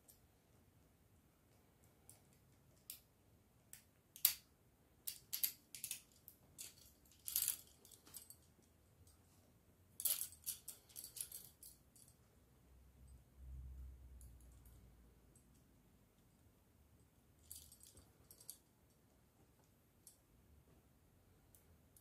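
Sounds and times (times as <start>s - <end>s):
handcuffs clicking and clinking: 5.0s - 9.2s, 10.0s - 12.2s, 17.4s - 18.7s
chain rattle: 5.3s - 8.5s, 10.0s - 12.2s, 17.4s - 18.6s.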